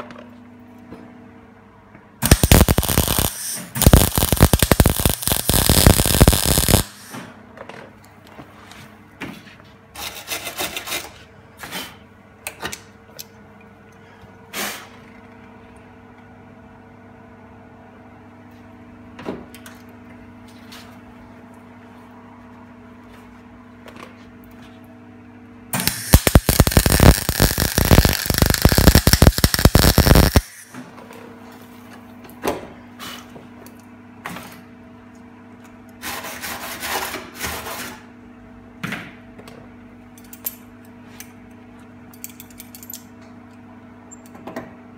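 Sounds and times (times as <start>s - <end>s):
steady hum: 0.0s - 9.9s, 20.1s - 34.2s
crackling welder: 2.2s - 7.2s, 25.7s - 30.7s.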